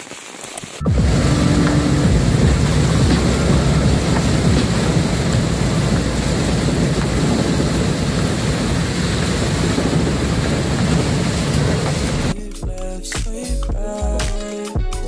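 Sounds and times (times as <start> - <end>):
rain hiss: 0.0 - 12.4
tyres on wet road: 0.0 - 12.4
diesel engine rumble: 0.8 - 12.4.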